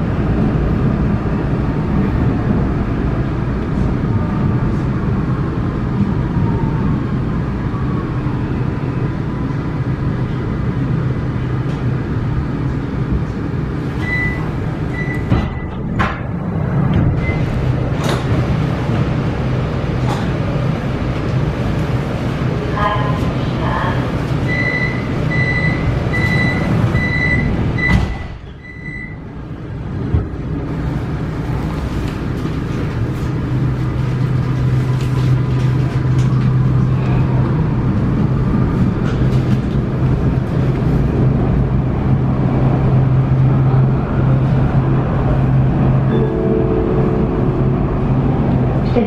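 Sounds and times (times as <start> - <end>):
train running hum: 0.0 - 49.0
train doors shutting: 11.5 - 31.4.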